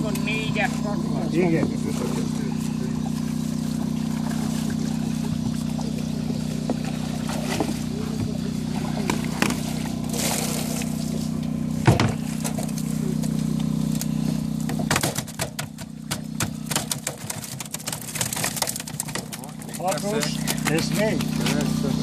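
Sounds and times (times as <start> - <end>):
low motor hum: 0.0 - 22.0
thump: 11.8 - 12.2
fish flapping against plastic crate: 14.0 - 21.7.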